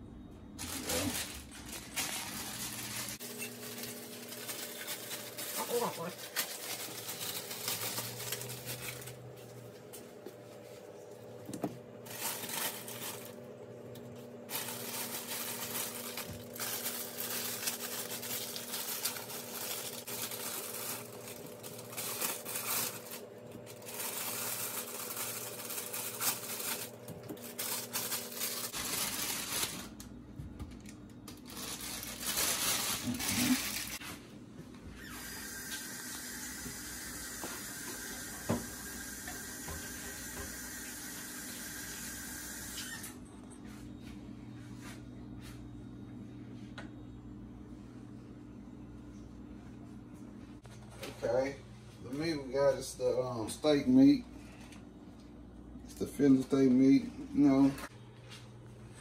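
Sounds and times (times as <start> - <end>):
plastic packaging crinkling and tearing: 0.6 - 9.6, 12.0 - 34.0.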